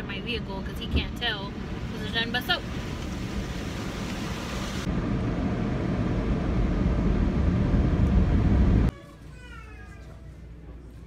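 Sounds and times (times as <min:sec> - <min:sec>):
car wash machinery rushing: 0:00.8 - 0:08.9.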